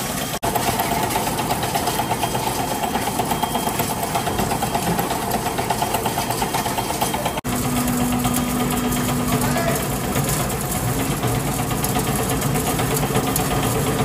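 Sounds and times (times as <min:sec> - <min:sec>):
plastic grinding machine rattling: 0:00.0 - 0:14.0
crushed plastic pouring: 0:07.5 - 0:14.0.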